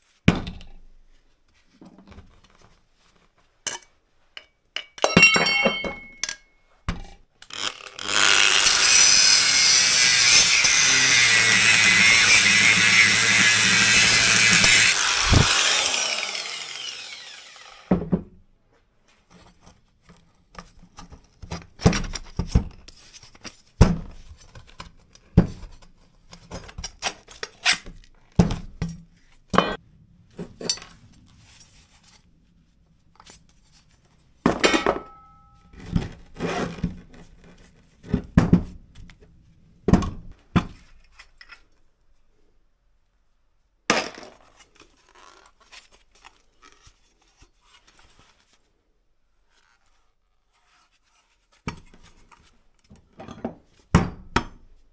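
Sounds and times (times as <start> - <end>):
metallic ring: 5.1 - 6.6.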